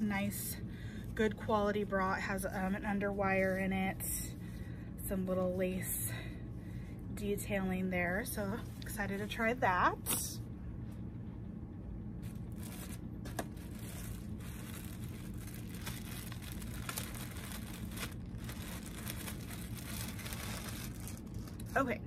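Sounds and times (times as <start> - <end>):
steady low hum: 0.0 - 22.0
plastic bag crinkling: 12.2 - 22.0.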